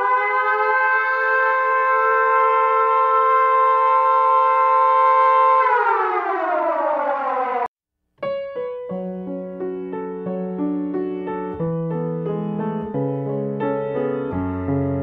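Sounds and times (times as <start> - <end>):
air-raid siren wailing: 0.0 - 7.7
piano music: 8.2 - 15.0.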